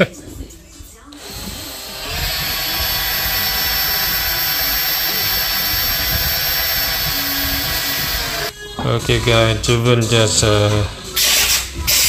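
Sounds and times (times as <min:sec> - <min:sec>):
cordless drill running: 0:01.1 - 0:08.5
file grinding metal spindle: 0:01.2 - 0:08.5.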